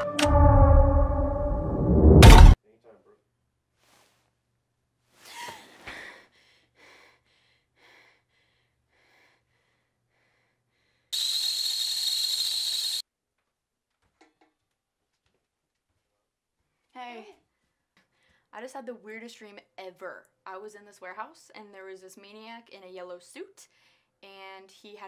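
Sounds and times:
woman panting: 5.2 - 11.1.

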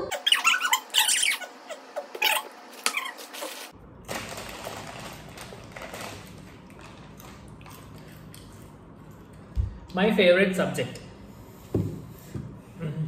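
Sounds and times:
steady low hum: 3.6 - 13.0.

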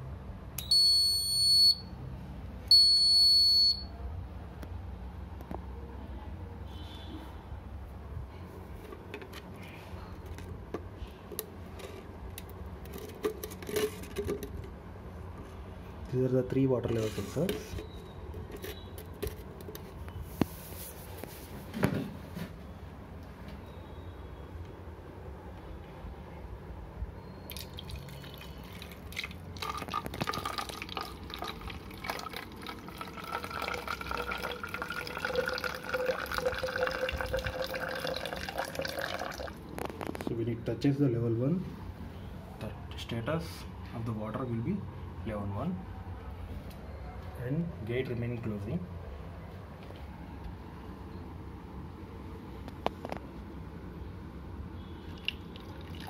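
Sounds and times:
water pouring into plastic bottle: 27.5 - 40.2, 55.1 - 56.0.

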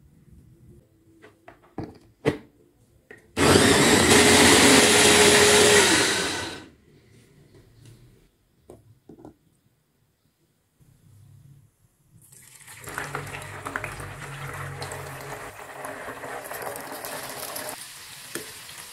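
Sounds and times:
electric food chopper running: 3.4 - 6.7.

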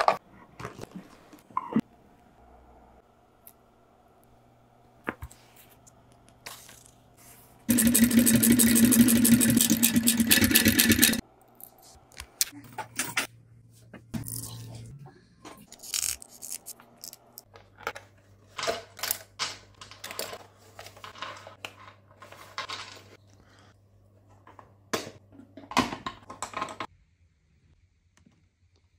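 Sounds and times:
loud mechanical run: 7.7 - 11.2.

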